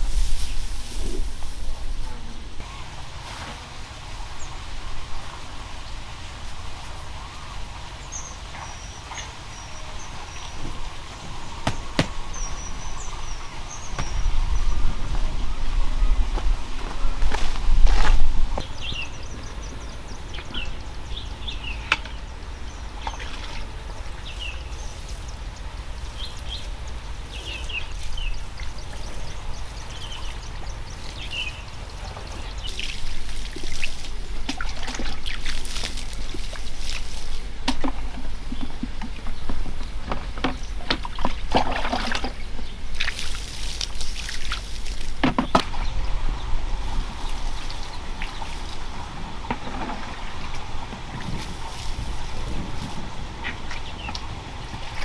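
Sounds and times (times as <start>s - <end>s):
water splashing onto soil: 31.0s - 38.0s, 41.0s - 45.8s, 51.2s - 54.2s.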